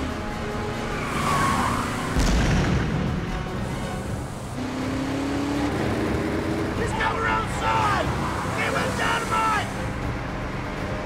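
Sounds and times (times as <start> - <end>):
soundtrack music: 0.0 - 11.0
vehicle engines running: 0.0 - 11.0
heavy boom: 2.2 - 3.6.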